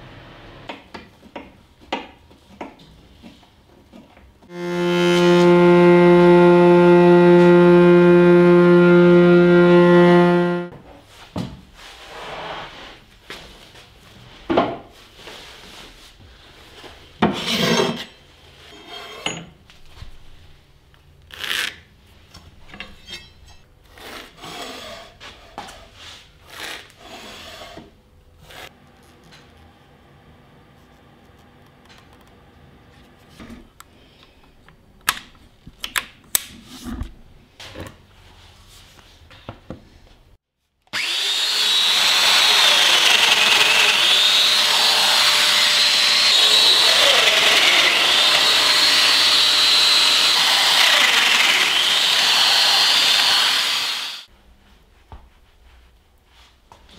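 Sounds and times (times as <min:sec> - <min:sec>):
held musical note with strings: 0:04.5 - 0:10.7.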